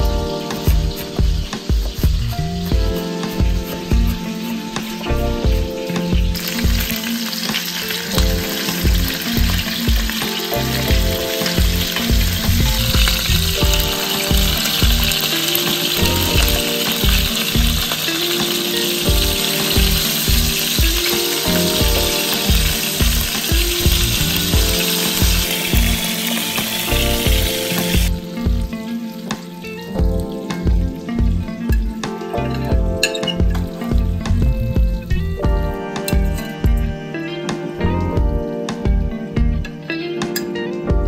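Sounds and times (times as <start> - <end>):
chicken sizzling in oil: 0.0 - 29.6
soft background music: 0.0 - 41.0.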